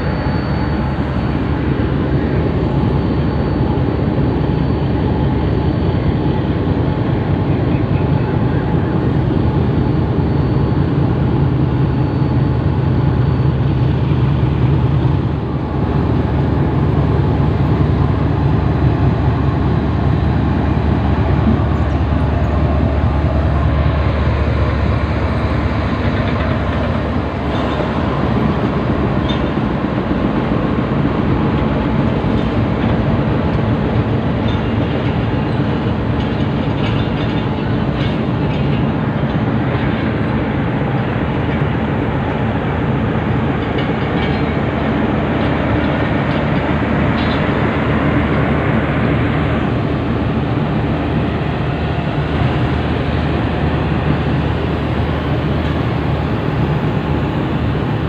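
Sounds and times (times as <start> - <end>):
locomotive engine rumbling: 0.0 - 58.0
train coaches rolling: 0.0 - 58.0
train wheel clicks: 25.3 - 29.8, 43.5 - 47.7.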